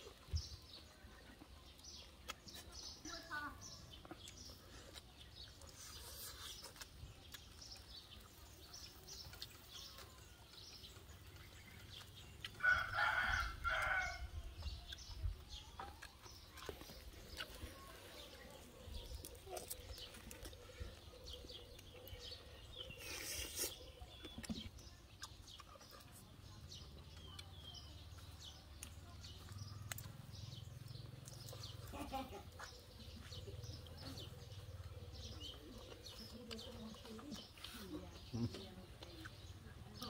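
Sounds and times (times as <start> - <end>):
small birds chirping: 0.0 - 40.0
rooster crowing: 12.6 - 14.3.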